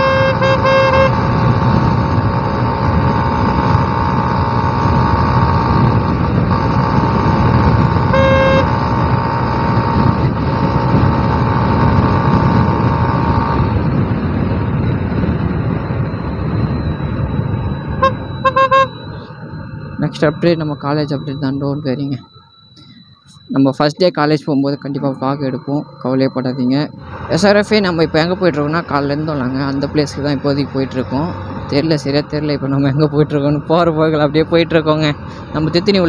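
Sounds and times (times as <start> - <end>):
vehicle horn honking: 0.0 - 1.5, 8.0 - 8.9, 18.0 - 19.3
wind and motorcycle road noise: 0.0 - 36.0.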